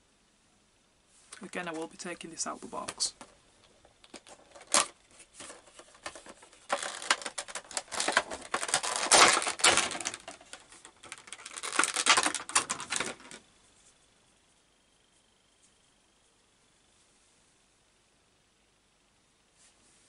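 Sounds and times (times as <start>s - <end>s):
cardboard and plastic crinkling: 2.7s - 13.4s.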